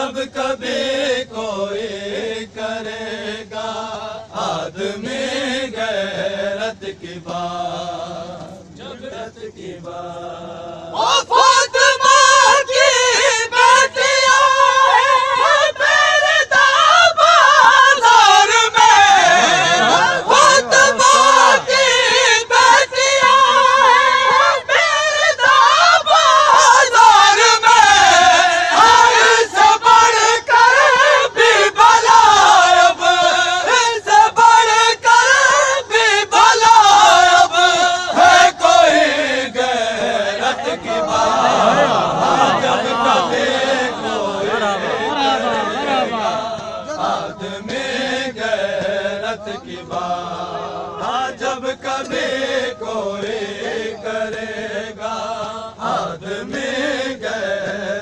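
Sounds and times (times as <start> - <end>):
men chanting together: 0.0 - 58.0.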